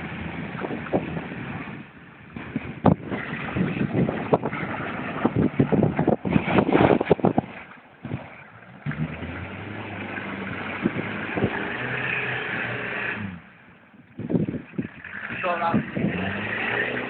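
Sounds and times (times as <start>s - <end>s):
off-road vehicle engine revving: 0.0s - 17.0s
splashes and knocks: 0.2s - 12.8s.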